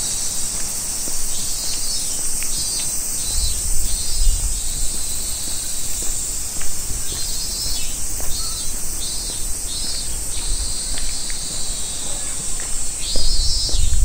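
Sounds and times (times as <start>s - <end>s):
insects trilling: 0.0s - 14.0s
pulsing insect calls: 0.0s - 14.0s.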